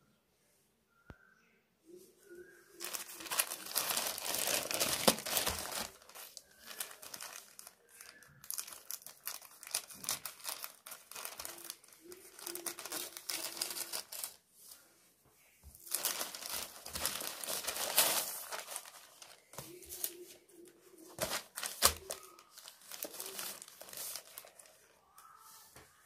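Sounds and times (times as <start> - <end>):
plastic bag crinkling: 2.8 - 14.4, 15.8 - 20.2, 21.1 - 25.0
plastic tearing: 2.8 - 14.4, 15.8 - 20.2, 21.2 - 24.9.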